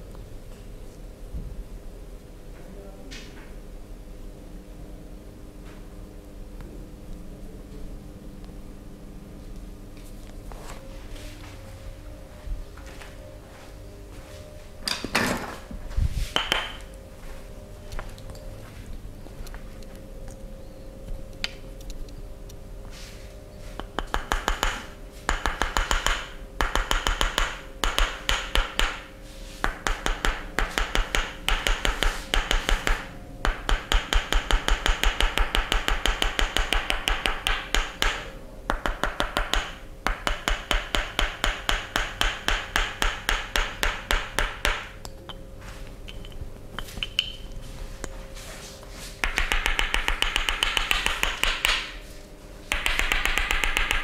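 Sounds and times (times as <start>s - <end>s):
faint steady hum: 0.0s - 54.0s
wooden massage tool clicking: 23.8s - 29.0s, 29.7s - 44.9s, 49.2s - 51.9s, 52.7s - 54.0s.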